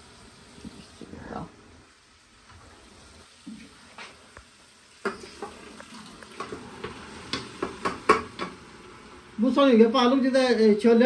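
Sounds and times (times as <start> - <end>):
utensils knocking on cookware: 6.4 - 8.7.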